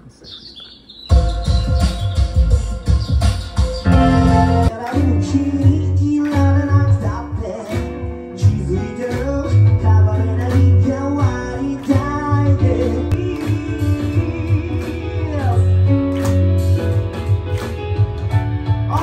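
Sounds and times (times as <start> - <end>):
electric keyboard: 0.8 - 19.0
bass line and beat: 1.1 - 19.0
person singing: 3.9 - 16.0.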